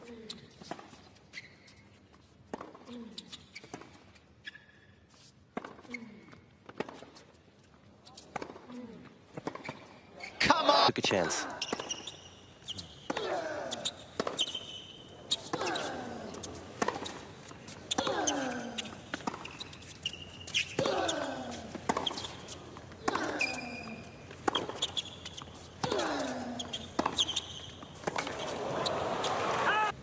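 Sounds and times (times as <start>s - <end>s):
shoes squeaking on court: 0.0s - 10.5s, 11.2s - 30.0s.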